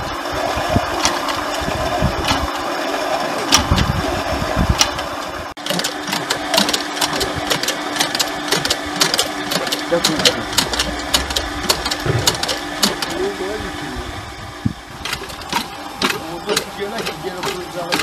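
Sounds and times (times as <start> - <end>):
water pump motor hum and rattle: 0.0 - 18.0
sharp metallic clicks: 5.6 - 13.2, 15.0 - 18.0.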